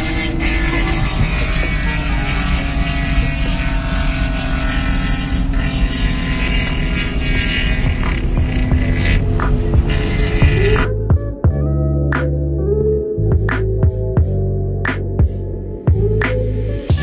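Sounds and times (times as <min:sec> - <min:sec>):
road noise: 0:00.0 - 0:11.2
car engine droning: 0:00.0 - 0:11.3.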